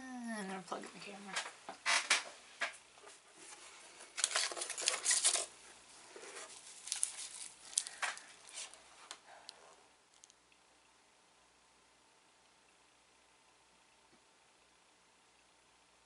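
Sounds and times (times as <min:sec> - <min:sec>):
snack wrapper crinkling: 0:04.2 - 0:05.5, 0:06.3 - 0:08.8, 0:10.1 - 0:10.4.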